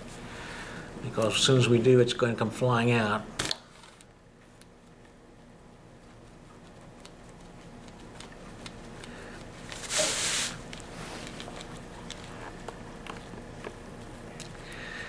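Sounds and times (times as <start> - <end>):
handling ticks: 6.0 - 9.9.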